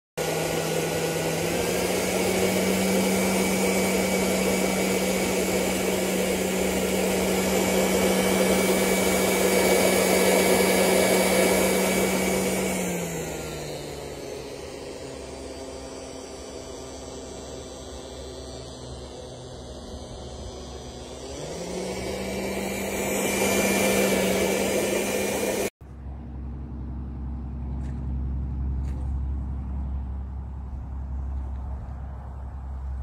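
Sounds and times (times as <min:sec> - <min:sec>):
motor hum: 0:00.2 - 0:33.0
vaporizer hissing: 0:00.4 - 0:25.8.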